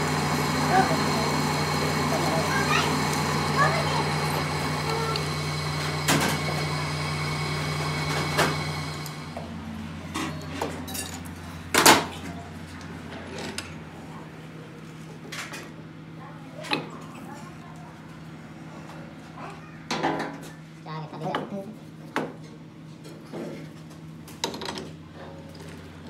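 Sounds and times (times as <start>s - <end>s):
metal lathe humming: 0.0s - 10.5s.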